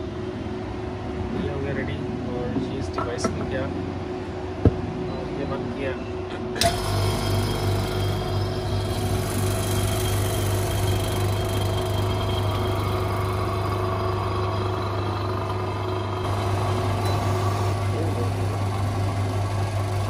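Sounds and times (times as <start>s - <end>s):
vacuum pump humming: 6.6s - 20.0s.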